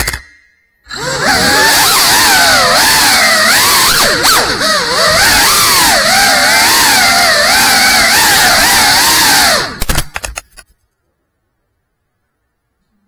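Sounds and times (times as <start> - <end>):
drone motors whining: 0.0 - 10.0.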